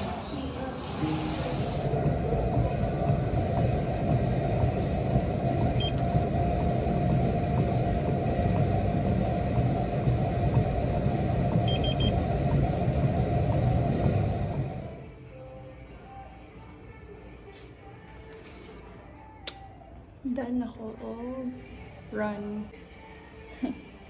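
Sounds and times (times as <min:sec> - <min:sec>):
steady low rumble: 0:00.0 - 0:15.1
faint high beeps: 0:11.6 - 0:12.2.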